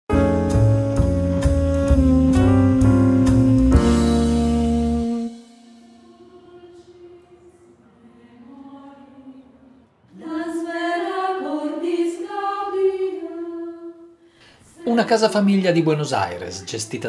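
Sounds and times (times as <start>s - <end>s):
women's choir singing: 5.7s - 15.6s.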